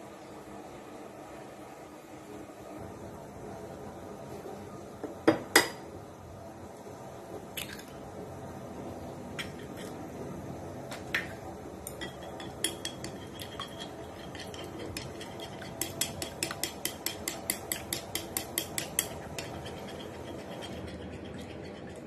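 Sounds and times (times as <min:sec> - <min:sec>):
low background noise: 0:00.0 - 0:22.0
metal utensil clinking against bowl: 0:11.9 - 0:21.6.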